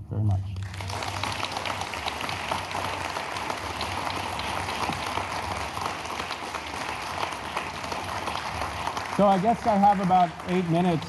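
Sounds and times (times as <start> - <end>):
audience applauding: 0.6 - 11.0.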